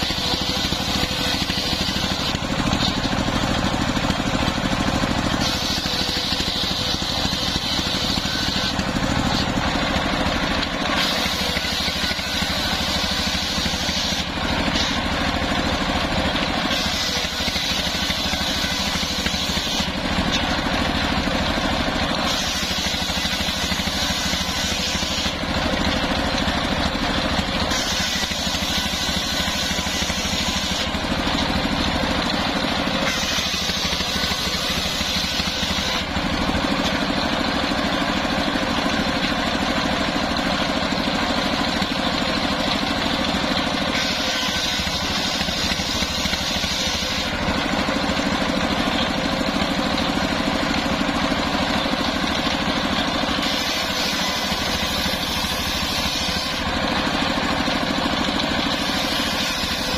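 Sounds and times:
diesel engine running: 0:00.0 - 0:59.9
saw blade cutting wood: 0:00.0 - 0:59.9
saw blade spinning freely: 0:00.0 - 0:59.9.

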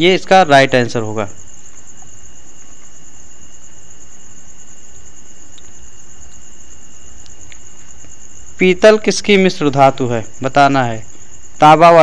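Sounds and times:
even hiss: 0:00.0 - 0:12.0
faint ticks: 0:04.9 - 0:06.5, 0:07.2 - 0:08.2.

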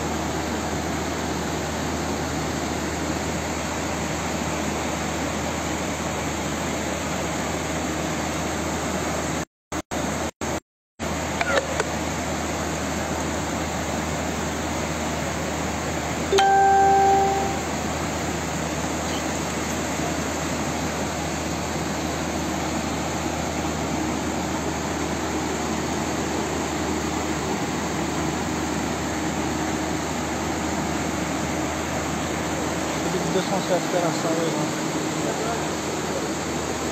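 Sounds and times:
loud steady tone: 0:16.3 - 0:18.4.

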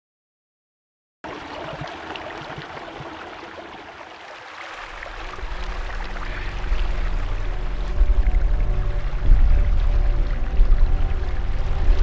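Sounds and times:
stream running over rocks: 0:01.3 - 0:12.0
low music drone: 0:04.9 - 0:12.0.

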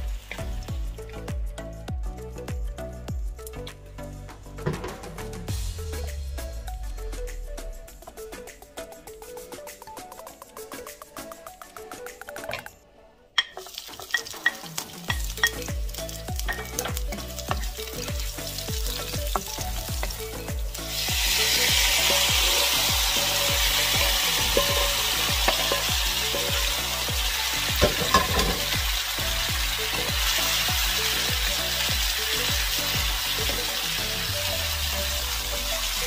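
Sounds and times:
onions frying in oil: 0:00.0 - 0:01.2, 0:13.5 - 0:36.0
loud steady sizzle: 0:00.0 - 0:01.4, 0:13.6 - 0:36.0
background music with steady beat: 0:00.0 - 0:36.0.

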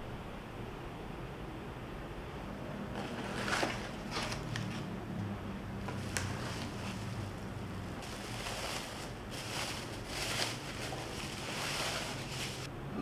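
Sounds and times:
low steady hum: 0:00.0 - 0:13.0
bubble wrap crinkling: 0:02.9 - 0:04.9, 0:05.7 - 0:12.7.

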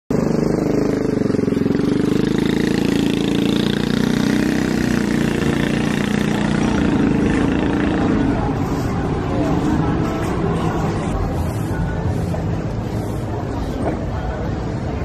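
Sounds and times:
faint street chatter: 0:00.1 - 0:15.0.

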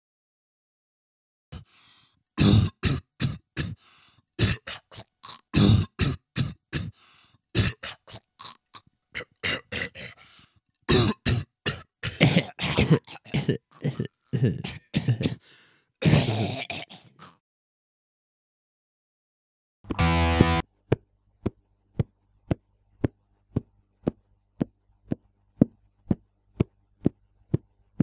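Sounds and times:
percussive mouth sounds: 0:10.9 - 0:15.4, 0:16.0 - 0:17.4, 0:20.9 - 0:28.0.

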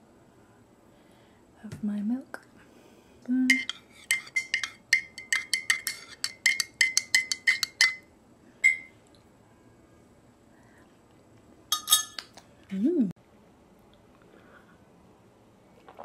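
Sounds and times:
spoon clinking in ceramic mug: 0:03.5 - 0:08.9, 0:11.7 - 0:12.3.

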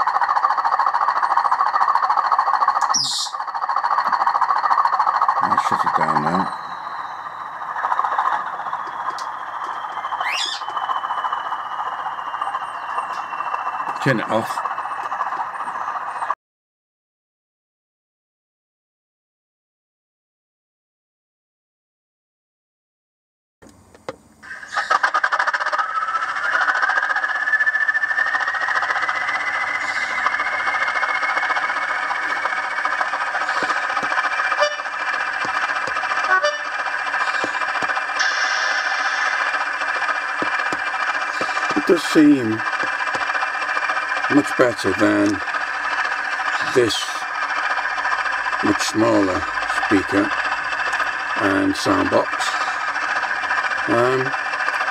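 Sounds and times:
rising whistle: 0:00.0 - 0:04.3, 0:04.9 - 0:16.4, 0:25.8 - 0:47.3
faint high whine: 0:00.0 - 0:16.4, 0:25.8 - 0:54.4
model diesel engine sound from speaker: 0:00.0 - 0:16.4, 0:23.6 - 0:54.9
brief squeal: 0:08.7 - 0:11.4.

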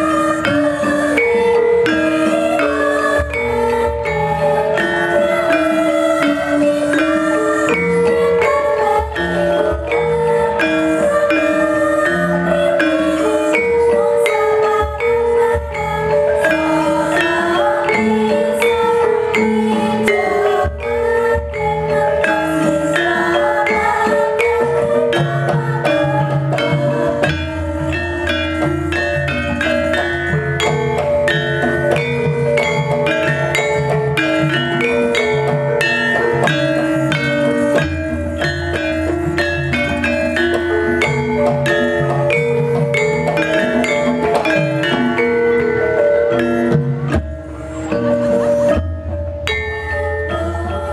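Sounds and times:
drum strokes: 0:00.0 - 0:50.9
metallophone notes ringing: 0:00.0 - 0:50.9.

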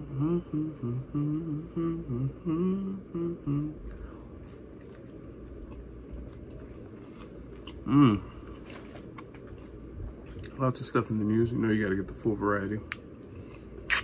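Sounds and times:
person humming: 0:00.0 - 0:04.2, 0:07.8 - 0:08.4
person chewing: 0:03.8 - 0:10.6.

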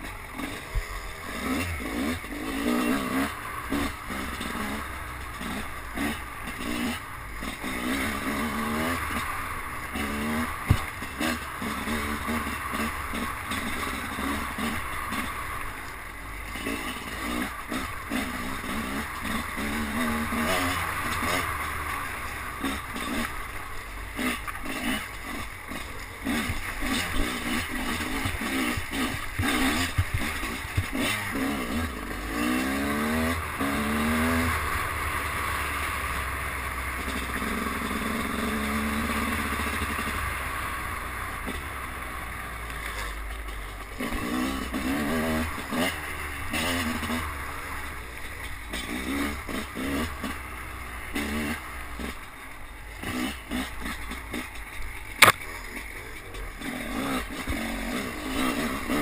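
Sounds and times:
dirt bike engine revving: 0:00.0 - 0:59.0
knocks from bumps: 0:10.6 - 0:11.0, 0:28.0 - 0:31.1.

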